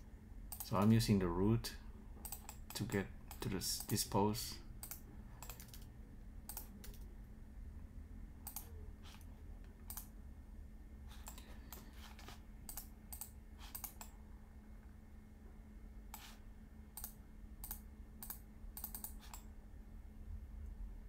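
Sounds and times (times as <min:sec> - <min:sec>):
faint low hum: 0:00.0 - 0:21.0
keyboard and mouse clicks: 0:02.2 - 0:04.0, 0:04.8 - 0:05.9, 0:06.5 - 0:07.1, 0:08.4 - 0:09.2, 0:09.8 - 0:10.1, 0:11.2 - 0:14.1, 0:17.0 - 0:19.5.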